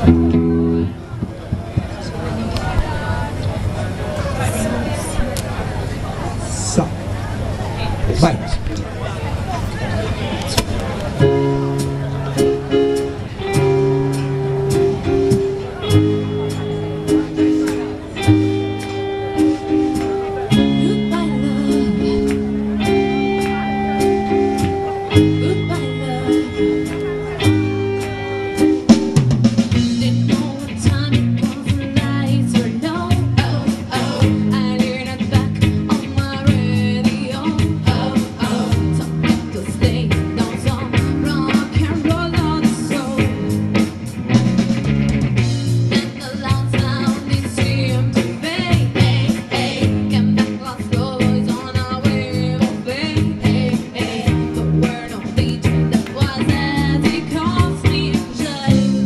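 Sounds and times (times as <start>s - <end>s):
drum kit: 0.0s - 2.1s, 10.5s - 59.0s
bass guitar: 0.0s - 5.5s, 7.8s - 59.0s
electric guitar: 0.0s - 5.7s, 9.5s - 59.0s
woman singing: 20.5s - 23.2s, 25.1s - 27.1s, 29.7s - 43.6s, 45.9s - 59.0s.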